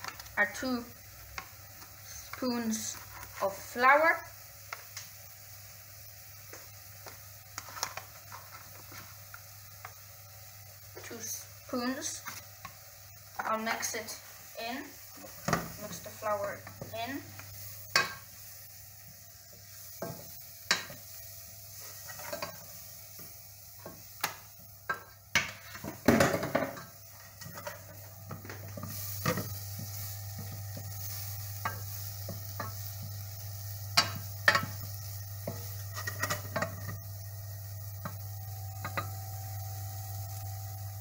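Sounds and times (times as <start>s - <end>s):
faint frying sizzle: 0.0s - 41.0s
wooden spoon scraping a pan: 2.1s - 3.7s, 7.6s - 9.2s, 21.7s - 24.0s, 24.9s - 33.1s, 35.4s - 37.0s
steady low hum: 8.4s - 41.0s.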